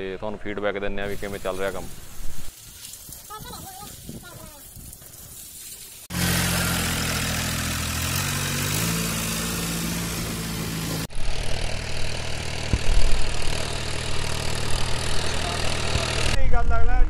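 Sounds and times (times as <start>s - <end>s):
wind gusts on microphone: 3.1s - 5.0s
tractor engine running: 6.1s - 16.4s.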